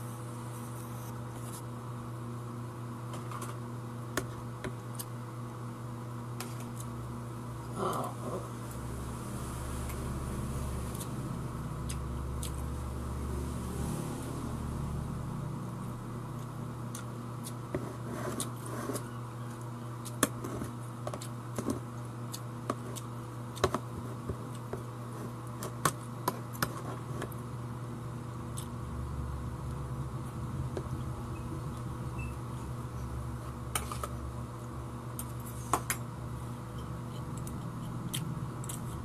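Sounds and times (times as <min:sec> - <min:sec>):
low hum: 0:27.3 - 0:35.5.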